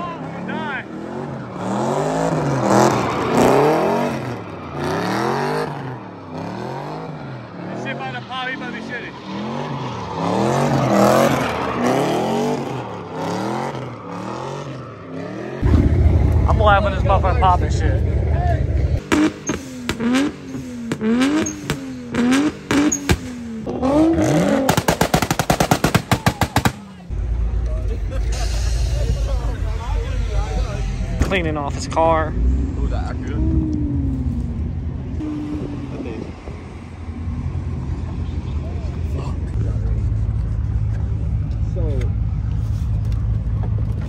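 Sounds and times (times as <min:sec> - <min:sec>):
tires squealing: 0:00.0 - 0:26.9
car engine revving: 0:00.0 - 0:44.0
sharp exhaust pops: 0:19.0 - 0:23.8, 0:24.6 - 0:26.8.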